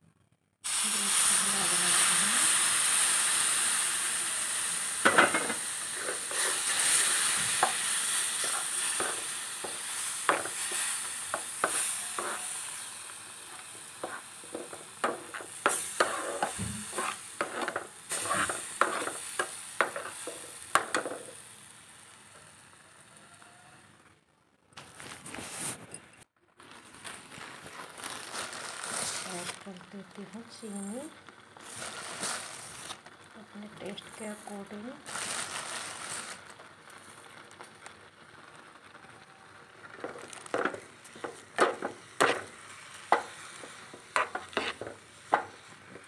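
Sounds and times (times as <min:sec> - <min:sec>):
milk sizzling in hot pan: 0:00.6 - 0:24.1, 0:26.5 - 0:46.0
metal ladle scraping pan: 0:05.0 - 0:12.9, 0:13.5 - 0:21.3, 0:40.0 - 0:42.5, 0:43.1 - 0:45.7.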